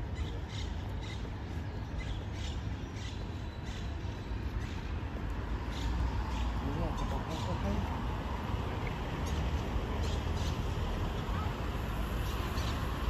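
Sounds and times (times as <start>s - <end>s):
road traffic rumble: 0.0s - 13.0s
wind: 0.0s - 13.0s.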